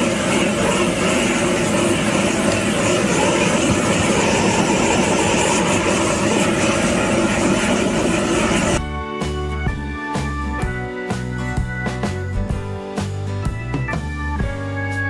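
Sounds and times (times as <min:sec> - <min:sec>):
blowtorch flame rushing: 0:00.0 - 0:08.8.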